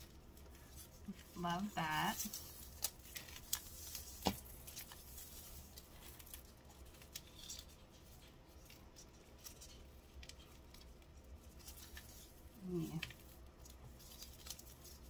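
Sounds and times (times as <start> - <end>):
tape rustling: 0.0 - 15.0.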